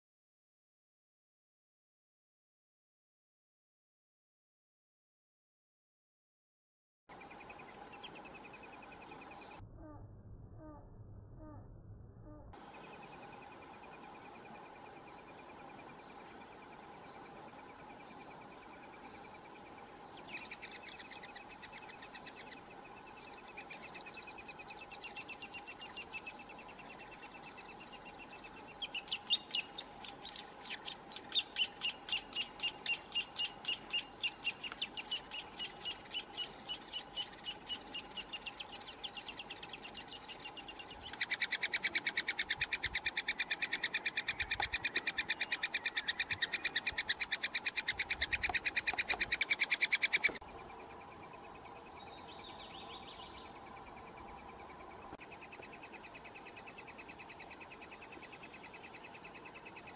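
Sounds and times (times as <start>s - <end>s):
woodpecker nestlings begging calls: 12.7s - 59.9s.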